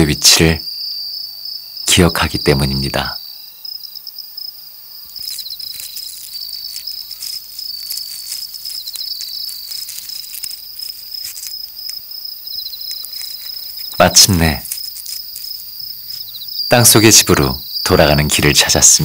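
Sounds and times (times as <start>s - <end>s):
insect chirring: 0.0s - 19.0s
faint ticks and rustles: 3.6s - 16.8s.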